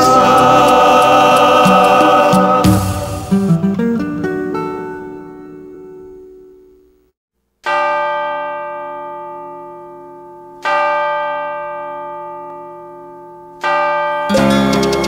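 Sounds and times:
guitar notes: 0.0 - 7.0, 14.2 - 15.0
bell ringing: 7.6 - 15.0.

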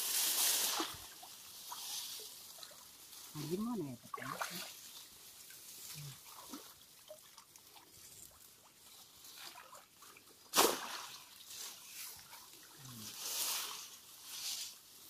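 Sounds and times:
loud water splash: 0.0 - 1.2, 10.5 - 11.3
plants rustling: 0.0 - 7.0, 10.6 - 15.0
water sloshing: 0.6 - 13.2.

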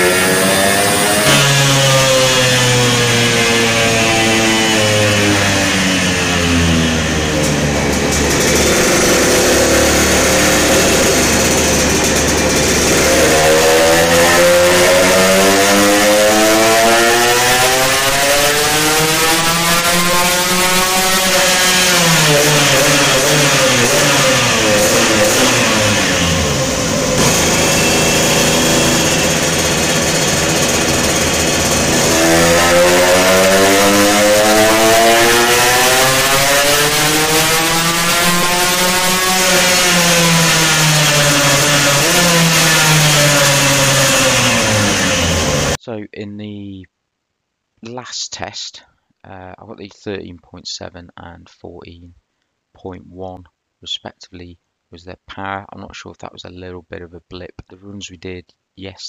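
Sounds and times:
two-stroke moped engine running: 0.0 - 45.8.

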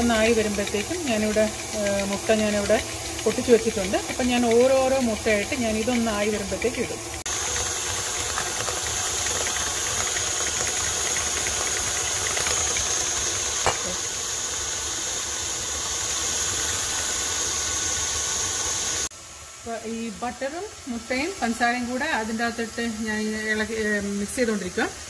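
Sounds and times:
stand mixer running: 0.0 - 17.3.

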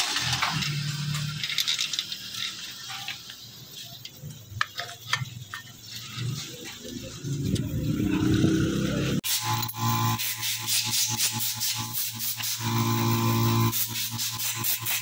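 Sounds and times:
metal parts clicking and rattling: 0.0 - 6.2.

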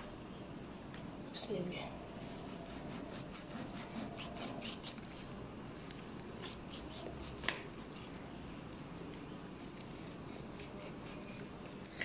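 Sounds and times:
knife sawing through meat: 2.2 - 5.3, 6.4 - 8.1.

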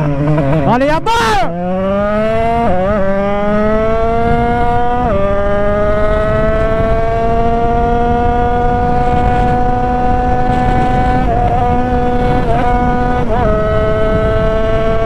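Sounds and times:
motorcycle engine accelerating: 0.0 - 15.0
rush of wind: 0.0 - 15.0.

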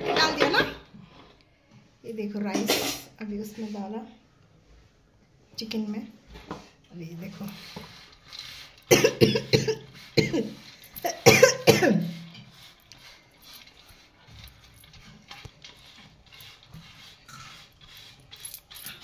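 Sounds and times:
person coughing hoarsely: 8.9 - 12.1.

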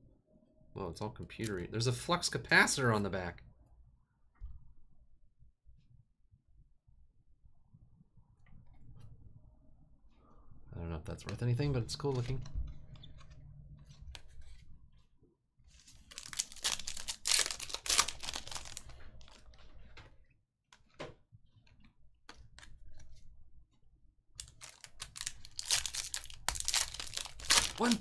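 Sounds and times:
foil wrapper crinkling: 15.8 - 19.6, 24.4 - 28.0.

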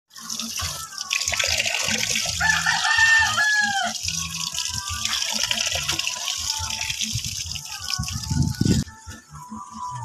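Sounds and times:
tap water splashing into metal basin: 0.2 - 8.3
rooster crowing: 2.4 - 4.0.

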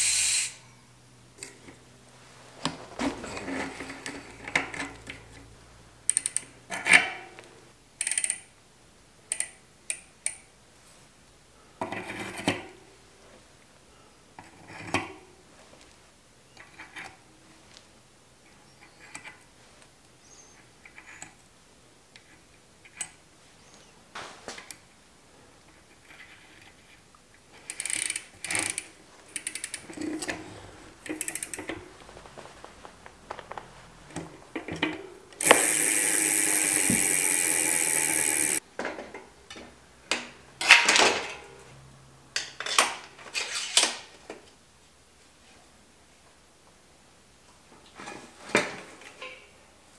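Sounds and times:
metal cogs clicking and clinking: 8.0 - 8.5, 27.6 - 30.4, 31.0 - 31.8, 35.4 - 38.6
lockring tightened with wrench: 35.4 - 38.6
loud mechanical buzz: 35.4 - 38.6.

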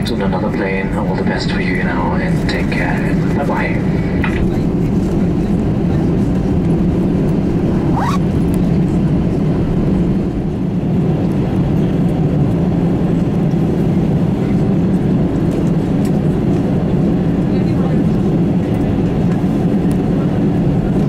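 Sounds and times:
airliner engines droning: 0.0 - 21.0
brief rising squeak: 7.8 - 8.2.

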